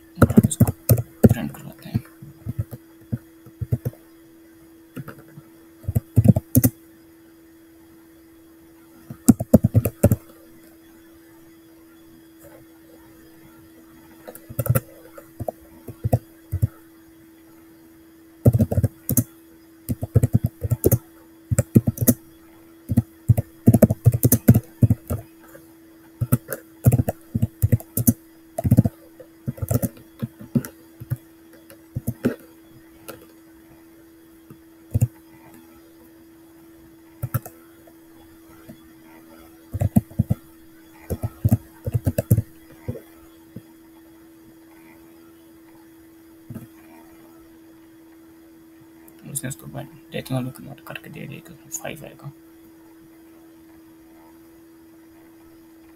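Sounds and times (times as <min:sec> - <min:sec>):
faint steady hum: 0:00.0 - 0:55.9
keyboard typing clicks: 0:00.2 - 0:04.0, 0:05.9 - 0:06.8, 0:09.1 - 0:10.3, 0:14.2 - 0:16.8, 0:18.5 - 0:19.3, 0:19.9 - 0:22.2, 0:22.9 - 0:25.3, 0:26.2 - 0:33.3, 0:34.9 - 0:35.1, 0:37.2 - 0:37.5, 0:39.8 - 0:40.4, 0:41.0 - 0:43.0.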